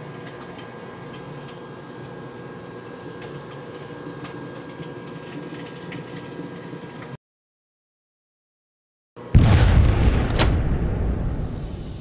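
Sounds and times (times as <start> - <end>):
microwave oven humming: 0.0 - 7.2.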